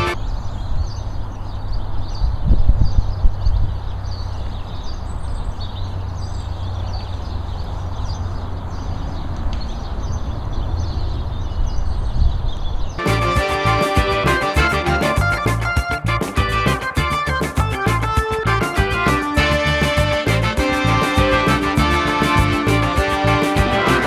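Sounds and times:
faint birds chirping: 0.0s - 23.5s
wind rumbling on microphone: 0.4s - 5.5s, 7.9s - 13.0s
music: 13.0s - 24.0s.

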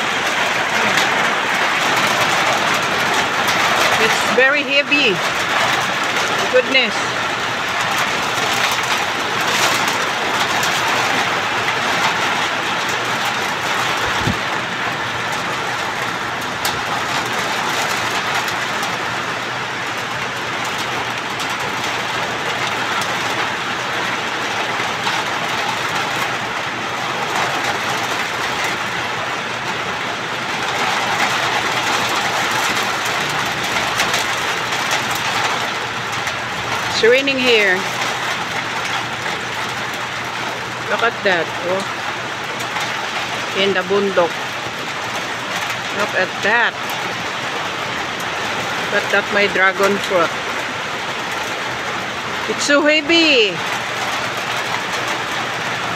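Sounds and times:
heavy rain on metal roof: 0.0s - 55.9s.

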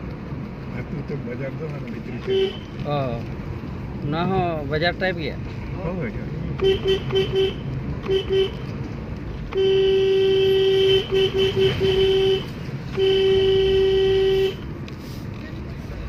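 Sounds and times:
car driving hum: 0.0s - 16.0s
car horn honking: 2.2s - 2.8s, 6.6s - 8.7s, 9.5s - 14.7s.

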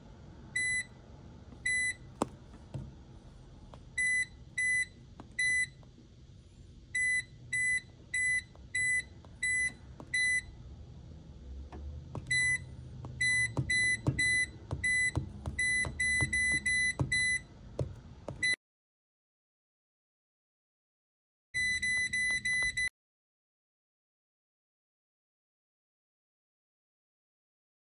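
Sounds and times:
short high keypad beeps: 4.0s - 5.8s, 7.0s - 10.5s, 12.3s - 17.5s, 18.4s - 18.6s, 21.6s - 22.9s.

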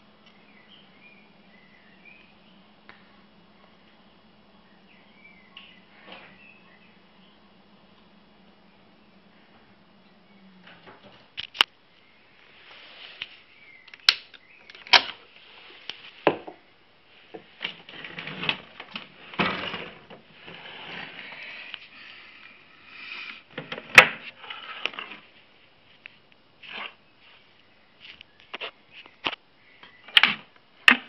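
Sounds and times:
rustling: 17.1s - 29.4s.

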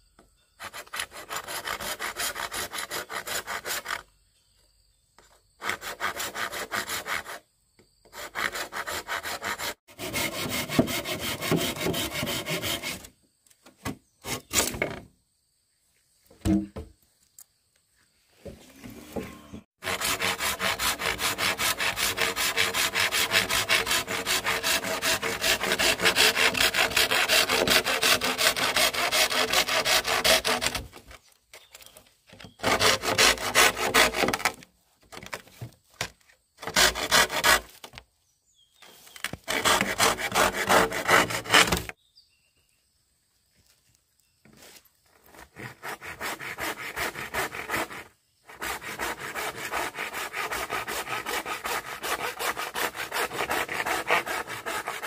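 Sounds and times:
hand saw cutting bamboo: 0.6s - 4.1s, 5.6s - 7.4s, 8.1s - 13.1s, 19.8s - 31.2s, 32.5s - 34.6s, 36.6s - 37.8s, 39.2s - 41.9s, 45.2s - 55.0s.

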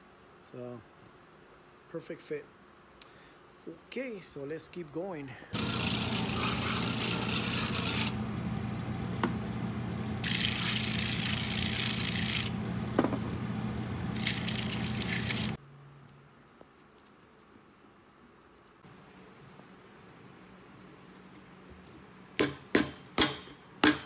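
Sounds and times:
leather sole grinding on sanding roller: 5.6s - 8.2s, 10.2s - 12.6s, 14.1s - 15.6s
machine motor hum: 5.6s - 15.6s.

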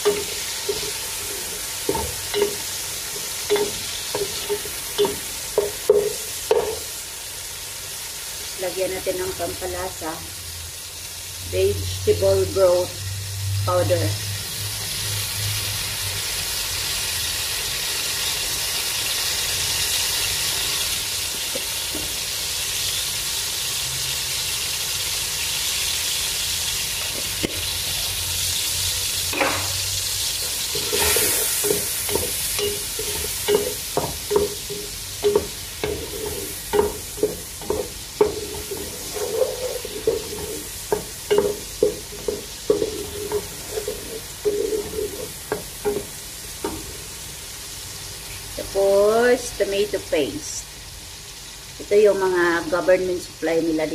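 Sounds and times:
mushrooms sizzling in oil: 0.0s - 53.9s
wooden spatula scraping pan: 30.7s - 46.9s.

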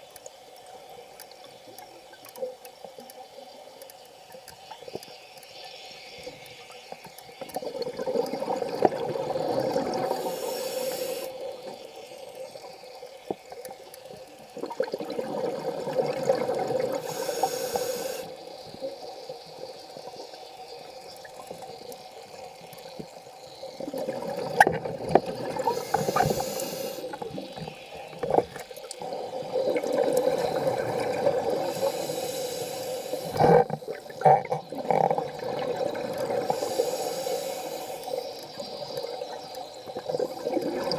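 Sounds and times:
regulator breath hiss: 9.9s - 12.2s, 16.9s - 18.4s, 25.6s - 28.6s, 30.4s - 34.2s, 36.4s - 38.6s
bubbling underwater exhalation: 33.3s - 36.6s.

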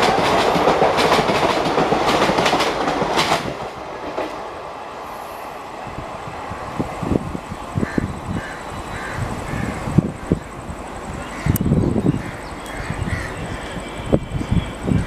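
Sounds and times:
train wheels clattering over rails: 0.0s - 4.6s.

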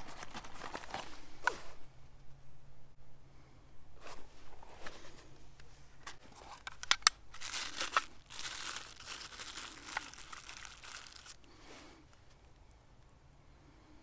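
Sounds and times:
tinder crinkling and tearing: 6.4s - 11.6s.

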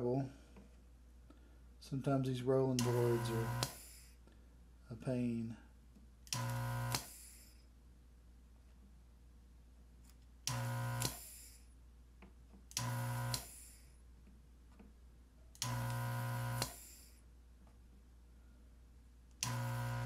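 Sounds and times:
desoldering pump buzzing: 2.8s - 4.1s, 6.3s - 7.4s, 10.5s - 11.5s, 12.7s - 13.8s, 15.6s - 17.1s, 19.4s - 20.0s.

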